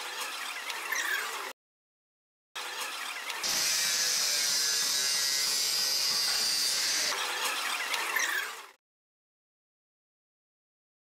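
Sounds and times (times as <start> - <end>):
power grinder grinding metal: 3.4 - 7.2.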